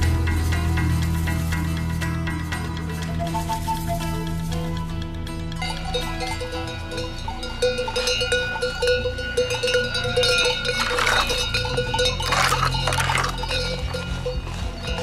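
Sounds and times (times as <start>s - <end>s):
livestock bells clinking: 5.4s - 15.0s.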